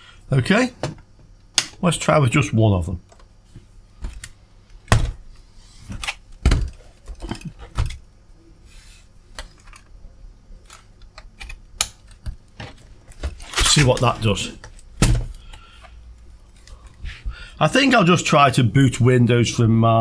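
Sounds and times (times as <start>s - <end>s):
memory module snapping into slot: 1.5s - 1.8s.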